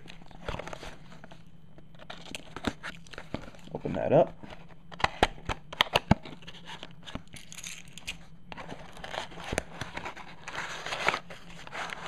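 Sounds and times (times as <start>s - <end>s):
cardboard rustling and crinkling: 0.0s - 5.3s, 8.5s - 12.0s.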